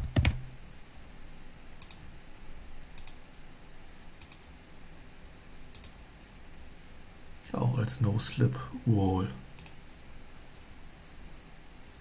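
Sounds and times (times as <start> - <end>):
faint low hum: 0.0 - 12.0
computer mouse clicks: 1.8 - 2.1, 2.9 - 3.2, 4.2 - 4.5, 5.7 - 6.0, 9.5 - 9.8.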